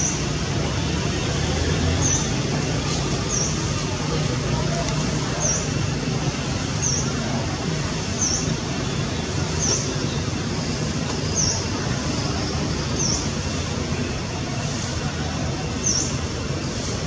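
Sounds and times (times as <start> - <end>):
bird chirping: 8.1 - 8.6, 11.3 - 11.8, 12.8 - 13.6.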